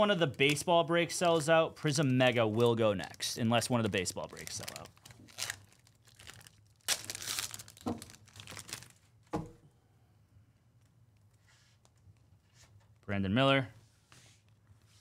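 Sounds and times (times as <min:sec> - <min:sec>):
card pack wrapper tearing and crinkling: 0:02.6 - 0:09.0.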